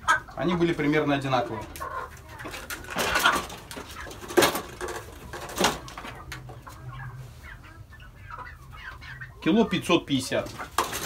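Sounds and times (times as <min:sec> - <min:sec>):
chickens clucking: 0:00.0 - 0:11.0
rustling and knocking: 0:02.4 - 0:06.5.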